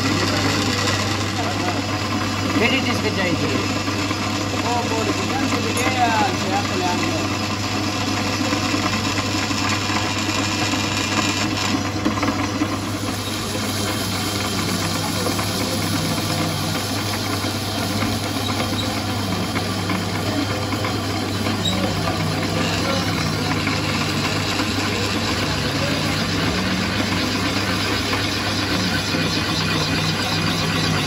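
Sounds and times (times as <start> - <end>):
drill grinding through steel: 0.0 - 31.0
drill motor hum: 0.0 - 31.0.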